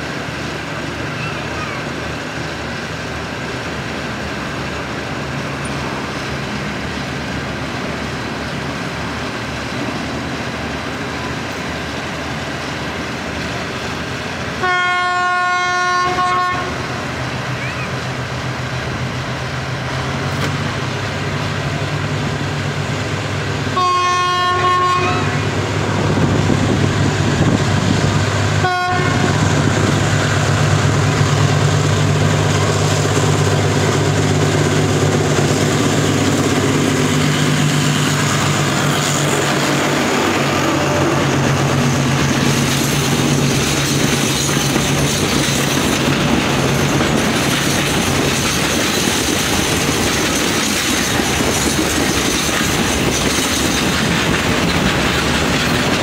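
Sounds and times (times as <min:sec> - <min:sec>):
train wheels rumbling on rails: 0:00.0 - 0:56.0
train horn: 0:14.6 - 0:16.9, 0:23.7 - 0:25.5, 0:28.6 - 0:29.4.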